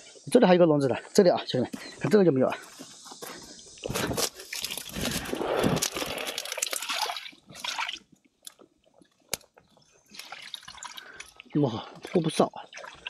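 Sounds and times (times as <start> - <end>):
grass rustling and crunching: 2.6 - 7.7.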